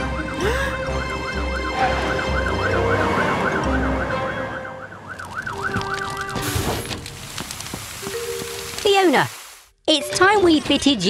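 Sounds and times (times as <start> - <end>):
cartoon siren wailing: 0.0 - 6.4.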